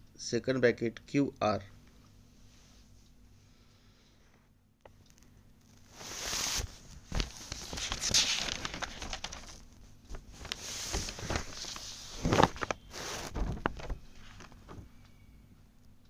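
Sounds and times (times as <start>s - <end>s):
rustling and scraping: 5.6s - 15.0s.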